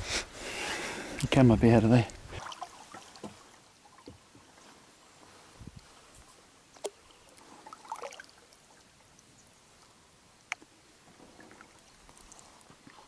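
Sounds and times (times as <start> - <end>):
water splashing: 2.1 - 4.6, 6.7 - 9.3
water dripping and trickling: 6.7 - 9.3, 11.4 - 13.0.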